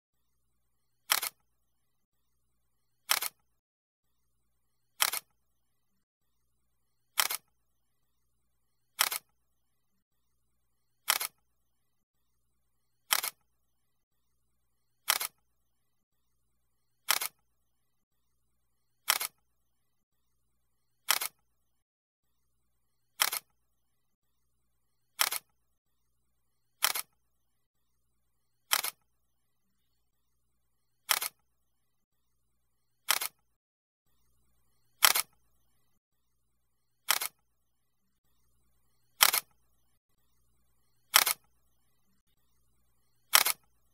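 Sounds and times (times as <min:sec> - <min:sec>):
camera shutter click: 0:01.1 - 0:01.4, 0:07.2 - 0:07.4, 0:09.0 - 0:09.2, 0:25.2 - 0:25.4, 0:26.8 - 0:27.1, 0:28.7 - 0:29.0, 0:31.1 - 0:31.4, 0:35.0 - 0:35.4, 0:39.2 - 0:39.5, 0:41.1 - 0:41.4, 0:43.3 - 0:43.6.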